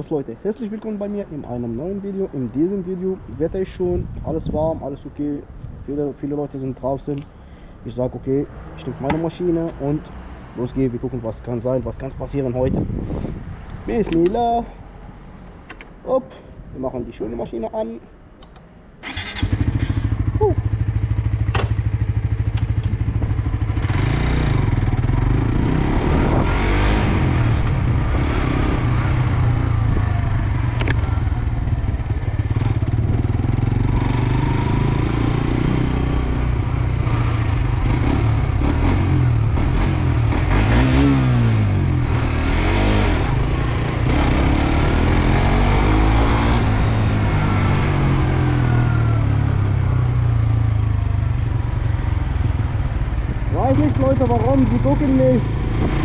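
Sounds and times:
motorcycle engine revving: 19.0s - 56.0s.

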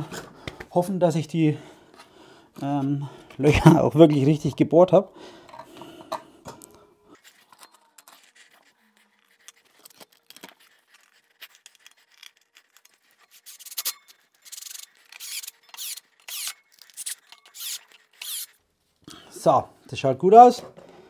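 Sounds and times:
cordless drill driving screws: 13.4s - 18.6s.

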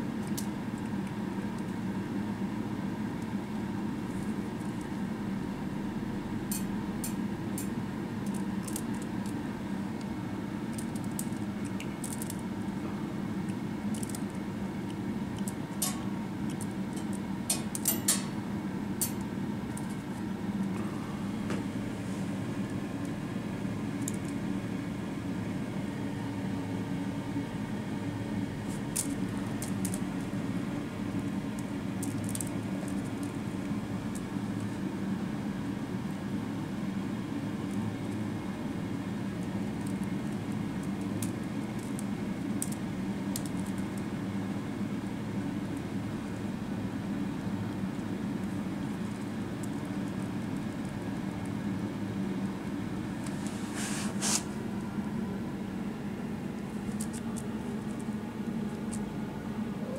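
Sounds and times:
low room hum: 0.0s - 59.9s.

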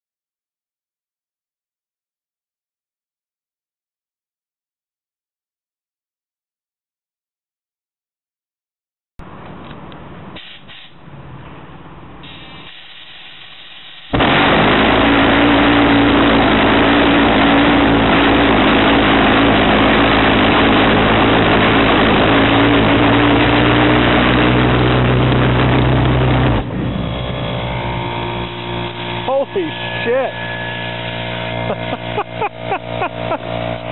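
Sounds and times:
pulsejet engine droning: 14.1s - 33.9s.

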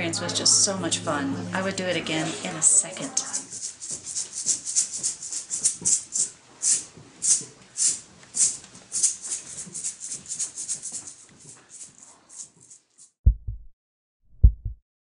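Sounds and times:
hand shakers rattling: 3.0s - 13.2s.

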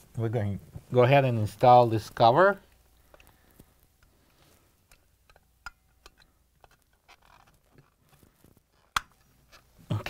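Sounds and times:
plastic clicks and rustles: 2.6s - 9.8s.

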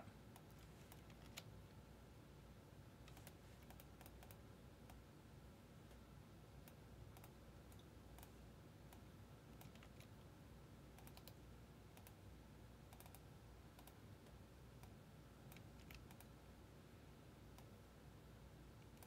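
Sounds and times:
low room hum: 0.0s - 19.0s
keyboard and mouse clicks: 0.3s - 1.5s, 3.0s - 5.0s, 6.6s - 10.2s, 10.9s - 12.2s, 12.9s - 16.4s, 18.8s - 19.0s.

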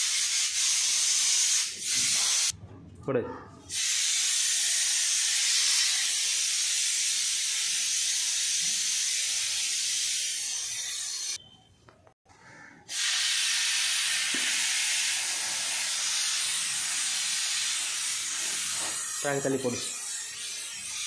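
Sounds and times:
compressed air blow gun hissing: 12.9s - 19.6s.

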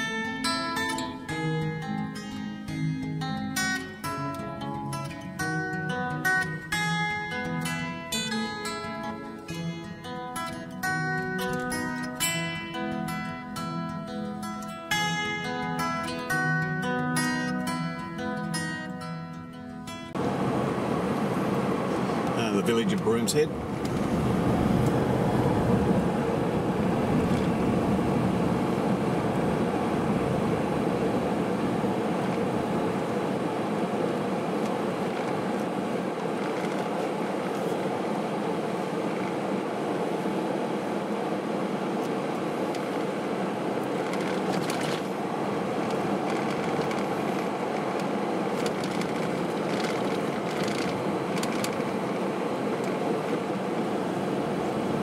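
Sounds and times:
car cabin road rumble: 20.1s - 55.0s.

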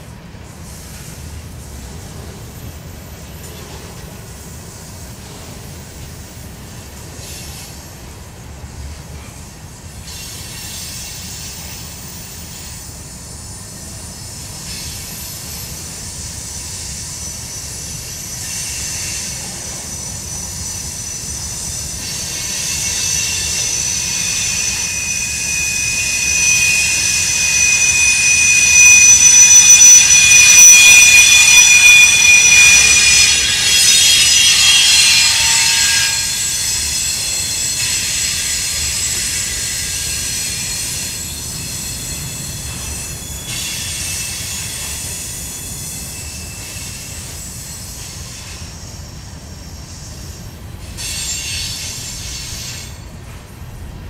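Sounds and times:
train wheels rumbling on rails: 0.0s - 54.0s
steel wheels squealing: 10.0s - 53.3s.

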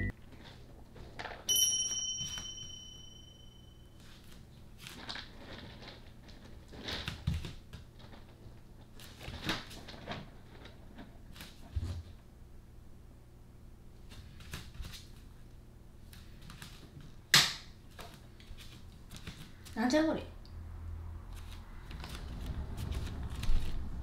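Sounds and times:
bright chime: 1.5s - 3.9s
cat scratching in litter: 4.0s - 12.0s, 21.3s - 24.0s.

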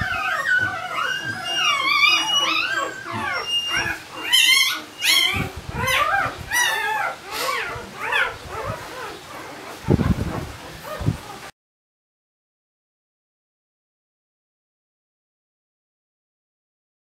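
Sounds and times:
puppy crying in high squeals: 0.0s - 9.9s.

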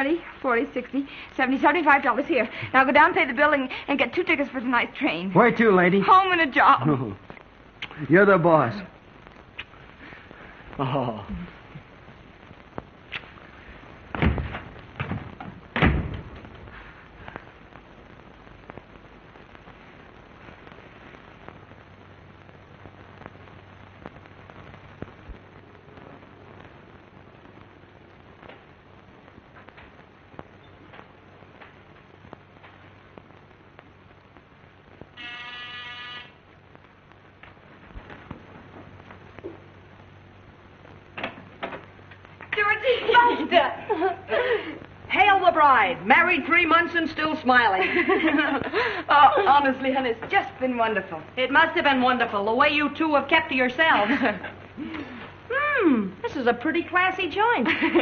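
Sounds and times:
film soundtrack hiss: 0.0s - 58.0s
electric buzzer: 35.2s - 36.4s.

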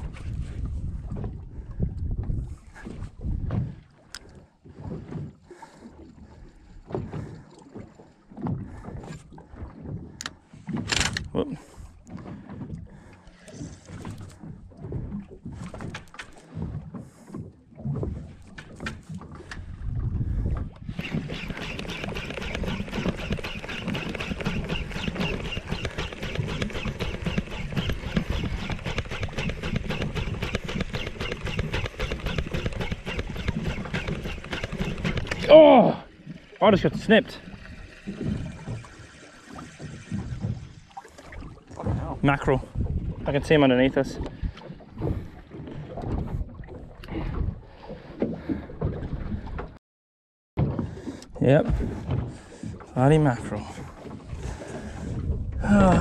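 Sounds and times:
fishing reel whirring tick: 21.0s - 35.5s
wind gusting on microphone: 41.9s - 45.4s.

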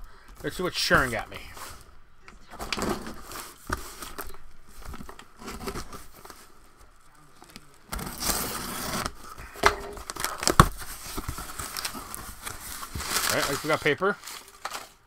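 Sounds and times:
packing tape scraping and clicking: 7.4s - 15.0s
cardboard tape tearing: 7.9s - 9.4s, 10.0s - 15.0s.

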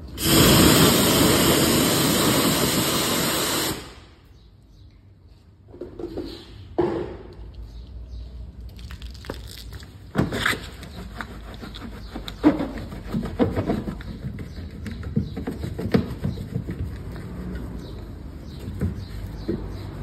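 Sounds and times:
wet scrubbing of a wheel: 8.8s - 20.0s.

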